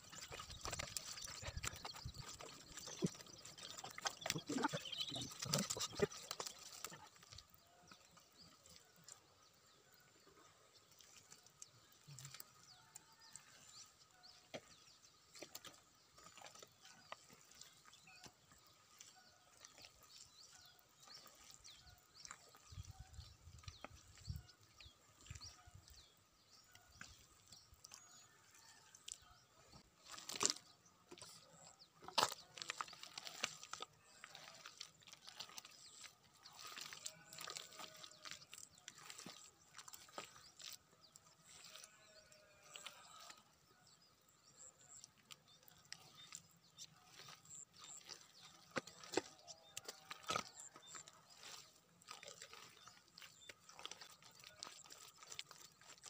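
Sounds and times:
hands squelching in mud: 0:31.3 - 0:41.9, 0:44.8 - 0:56.0.

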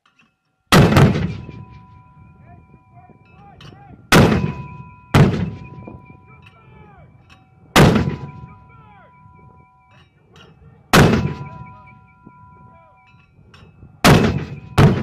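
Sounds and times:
mortar firing blasts: 0:00.7 - 0:01.6, 0:04.1 - 0:05.8, 0:07.8 - 0:08.4, 0:10.9 - 0:11.6, 0:14.0 - 0:15.0.

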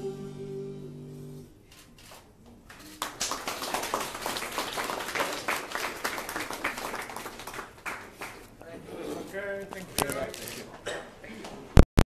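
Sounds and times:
people applauding: 0:02.7 - 0:08.6.

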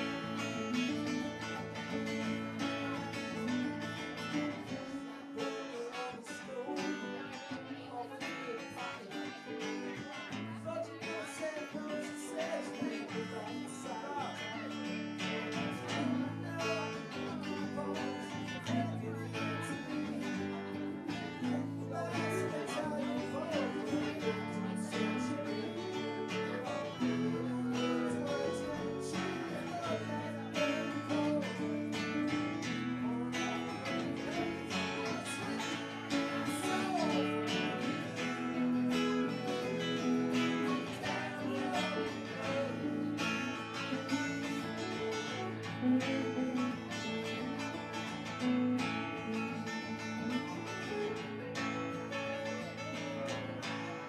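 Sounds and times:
electric guitars: 0:00.0 - 0:54.0
strummed acoustic guitar: 0:00.0 - 0:54.0.

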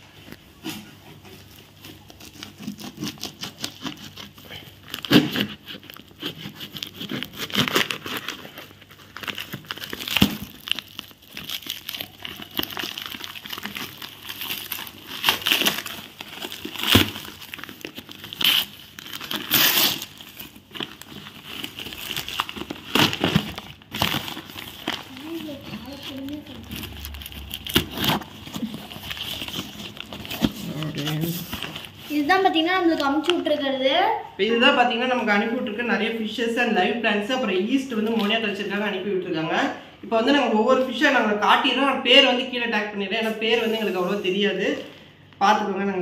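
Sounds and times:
plastic wrap and paper ripping: 0:00.6 - 0:33.6.

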